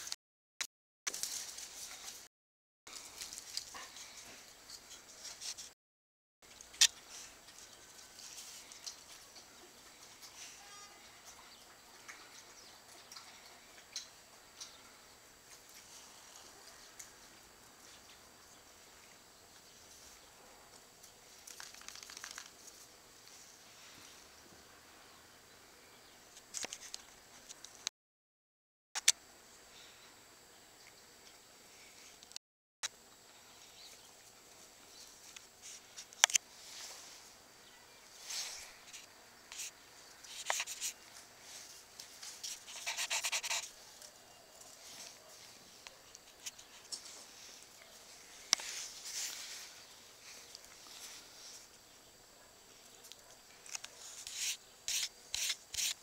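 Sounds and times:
dogs snuffling and scuffling: 0:01.1 - 0:02.3, 0:02.9 - 0:05.8, 0:06.5 - 0:24.4, 0:33.6 - 0:56.0.

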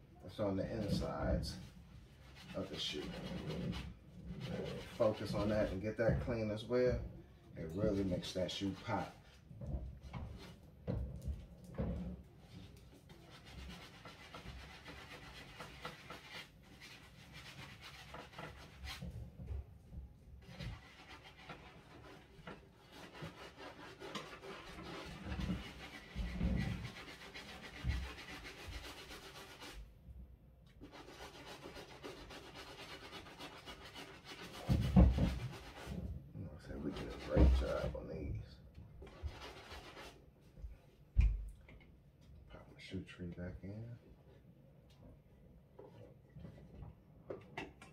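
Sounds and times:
brush scrubbing a sneaker: 0:00.4 - 0:06.6, 0:07.6 - 0:09.3, 0:12.4 - 0:19.2, 0:20.4 - 0:29.9, 0:30.8 - 0:38.1, 0:39.0 - 0:40.2.

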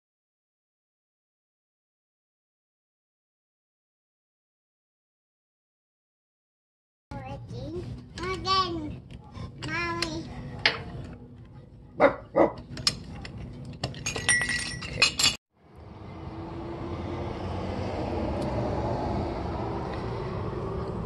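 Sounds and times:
metal tools clinking and knocking: 0:12.6 - 0:15.4.

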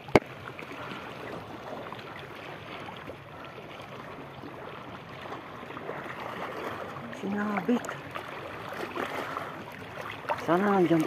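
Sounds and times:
small waves lapping: 0:00.0 - 0:11.0.

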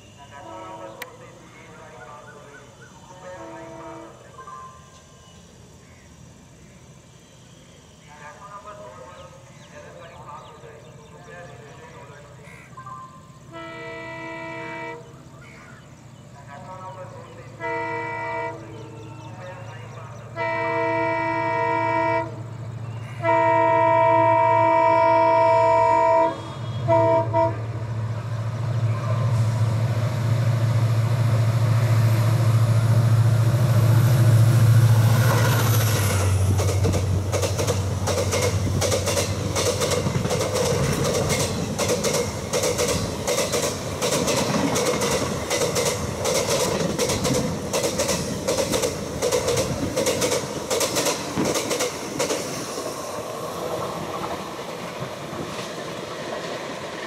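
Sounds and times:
locomotive horn: 0:00.3 - 0:01.1, 0:03.3 - 0:04.3, 0:13.5 - 0:15.2, 0:17.6 - 0:19.0, 0:20.3 - 0:27.9
train wheels clacking: 0:35.3 - 0:52.9.

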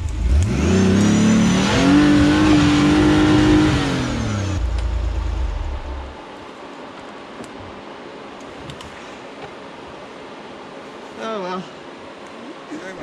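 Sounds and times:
engine revving hard: 0:00.0 - 0:06.0.

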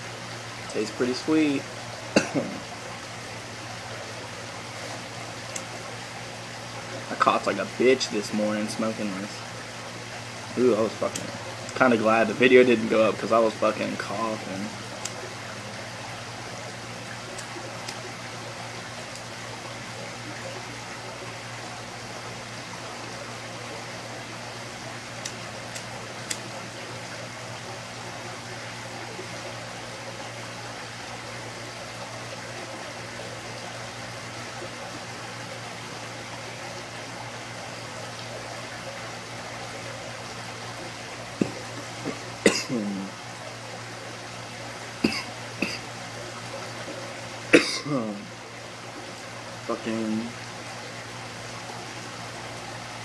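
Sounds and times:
room hiss and hum: 0:00.0 - 0:53.0
person coughing: 0:02.1 - 0:02.6, 0:41.4 - 0:43.1, 0:45.0 - 0:45.8, 0:47.6 - 0:48.2.

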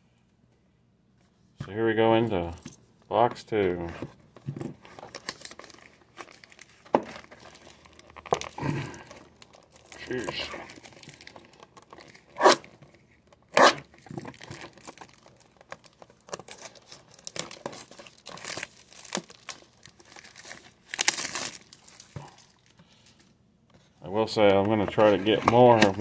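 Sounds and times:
packaging ripping: 0:04.9 - 0:12.8, 0:13.5 - 0:22.7
wrappers crinkling: 0:04.9 - 0:12.8, 0:13.8 - 0:22.8.

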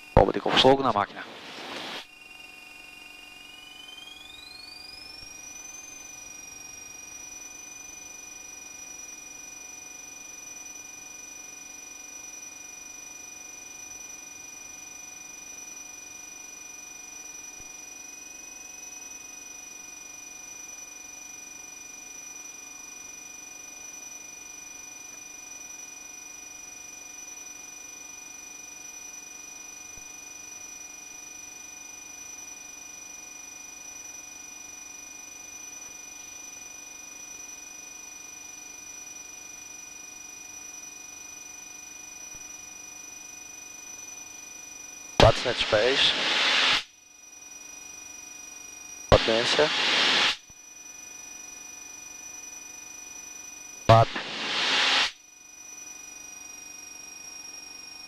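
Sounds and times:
faint hiss: 0:45.2 - 0:46.8, 0:49.1 - 0:50.4, 0:53.9 - 0:55.1
whining intercom tones: 0:45.2 - 0:46.8, 0:49.1 - 0:50.4, 0:53.9 - 0:55.1.

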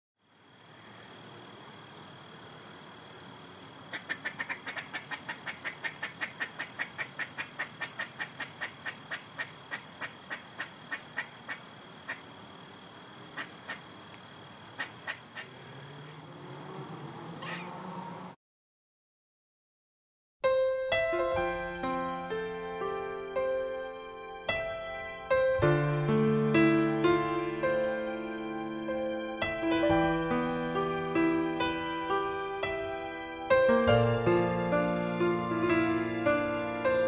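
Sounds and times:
insect chirping: 0:00.2 - 0:18.4, 0:21.4 - 0:37.0
music: 0:20.4 - 0:37.0.

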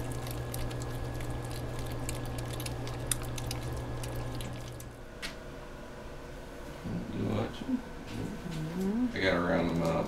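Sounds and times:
kittens chewing and lapping food: 0:00.0 - 0:05.0, 0:09.4 - 0:10.0
steady low hum: 0:00.0 - 0:10.0.

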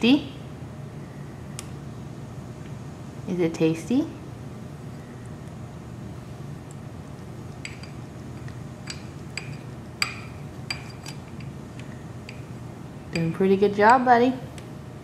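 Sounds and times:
low background hum: 0:00.0 - 0:15.0
spoon clinking against glass cup: 0:07.6 - 0:11.5.

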